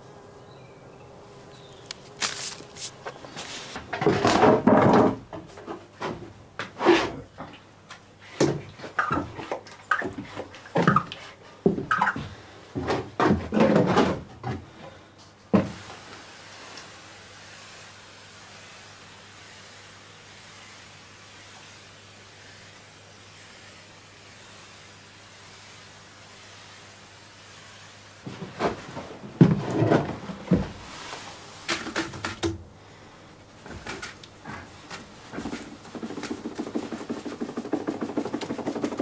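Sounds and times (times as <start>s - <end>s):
tools and buckets knocking: 3.9s - 6.2s, 35.4s - 39.0s
faint steady hiss: 14.7s - 29.5s, 30.1s - 39.0s.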